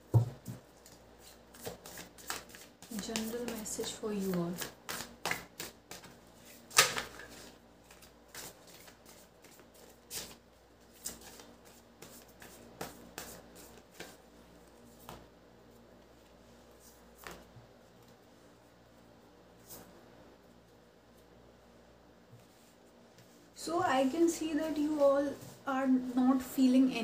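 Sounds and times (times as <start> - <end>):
cards shuffling: 0.8 - 14.2
card taps and slaps: 4.6 - 6.1.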